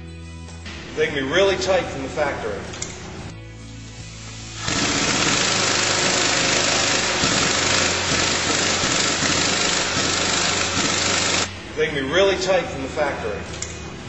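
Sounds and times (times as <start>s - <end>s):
impact wrench hammering: 4.6s - 11.5s.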